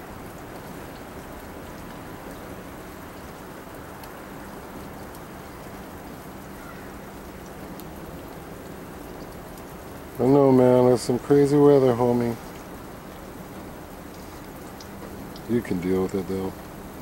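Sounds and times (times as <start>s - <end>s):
wet snow falling: 0.0s - 17.0s
faint ticks: 14.0s - 15.5s.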